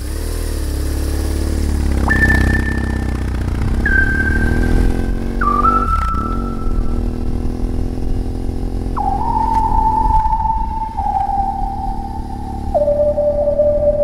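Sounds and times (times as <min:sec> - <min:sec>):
motorcycle engine running: 0:00.0 - 0:14.0
slow high melody: 0:02.0 - 0:07.8, 0:08.7 - 0:14.0.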